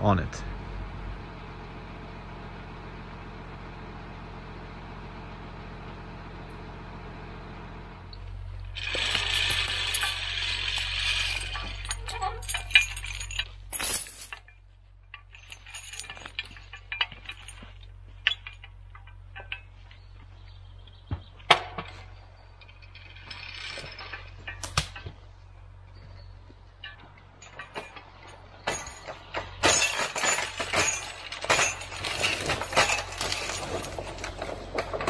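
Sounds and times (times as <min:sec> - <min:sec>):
low steady hum: 0:00.0 - 0:35.0
steel chains clinking: 0:08.6 - 0:20.1, 0:21.8 - 0:25.1, 0:26.8 - 0:35.0
sharp cracks: 0:24.6 - 0:25.0.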